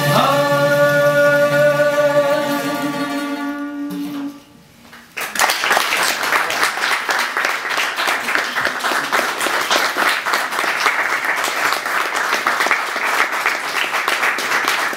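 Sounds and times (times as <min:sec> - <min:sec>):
audience applauding: 0:05.1 - 0:14.9.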